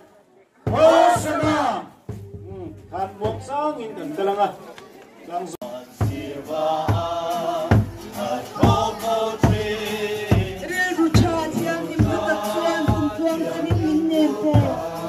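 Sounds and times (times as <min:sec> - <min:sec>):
group of people singing: 0:00.7 - 0:01.9, 0:05.5 - 0:15.0
steady drum beat: 0:00.7 - 0:03.8, 0:05.6 - 0:15.0.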